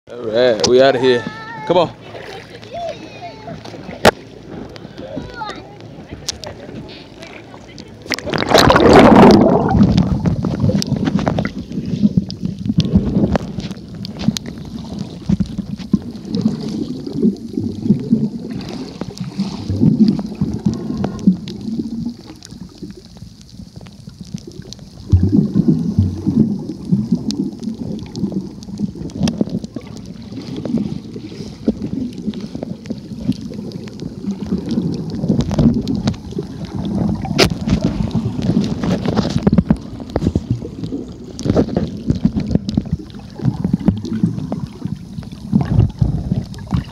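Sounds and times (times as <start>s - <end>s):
muffled underwater sloshing: 0.1s - 46.9s
loud water splash: 8.1s - 12.2s, 14.6s - 22.4s
loud water surge: 8.1s - 13.6s, 14.2s - 22.8s.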